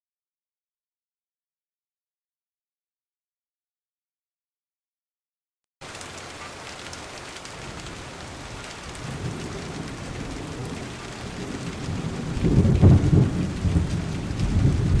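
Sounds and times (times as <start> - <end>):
rushing floodwater: 5.8 - 15.0.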